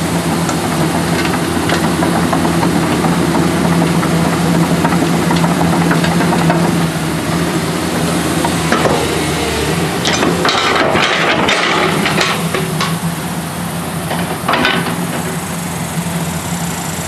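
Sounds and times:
diesel engine running: 0.0s - 17.0s
metallic clanking: 9.8s - 13.1s.

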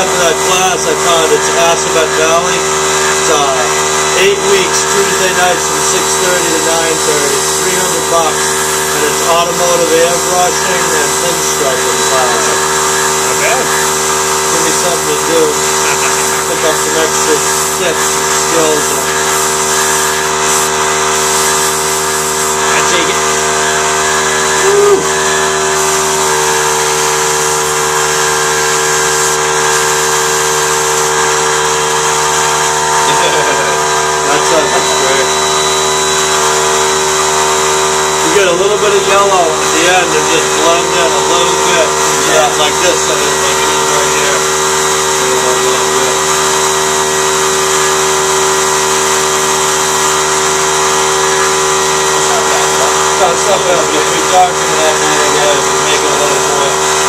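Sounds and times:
compressor motor hum: 0.0s - 57.0s
airbrush air hiss: 0.1s - 23.6s, 24.3s - 33.8s.

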